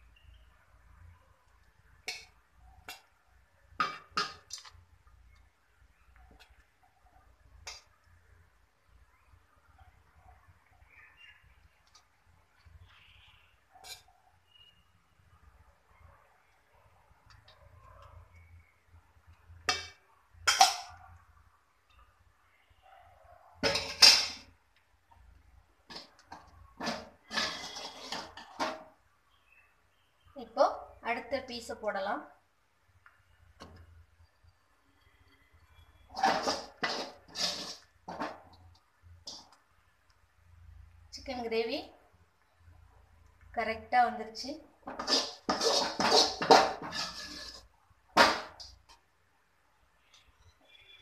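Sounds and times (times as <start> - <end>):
utensil clinking metal pot: 3.8 - 4.7, 19.7 - 21.0, 23.6 - 24.5, 25.9 - 28.9, 36.0 - 38.6, 44.8 - 47.6.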